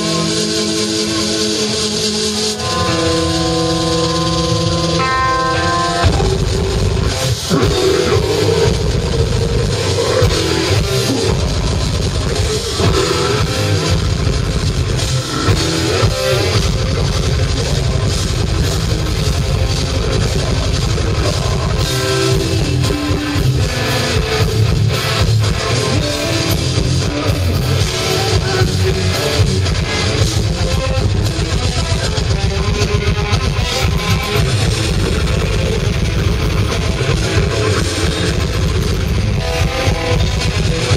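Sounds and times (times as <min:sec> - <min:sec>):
distorted electric guitars: 0:00.0 - 0:40.9
fast drumming: 0:00.0 - 0:40.9
harsh growled vocals: 0:06.0 - 0:31.2.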